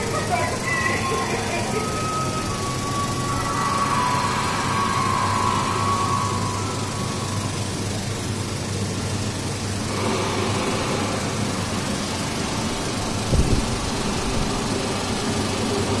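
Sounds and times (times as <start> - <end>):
lamphouse fan hum: 0.0 - 16.0
low mains hum: 0.0 - 16.0.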